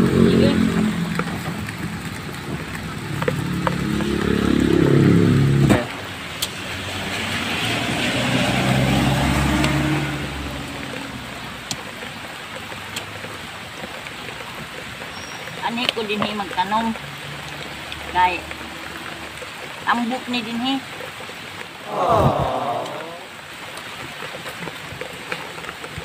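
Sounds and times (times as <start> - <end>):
engine rising in pitch: 0.0 - 11.6
vehicles passing on a road: 0.0 - 26.0.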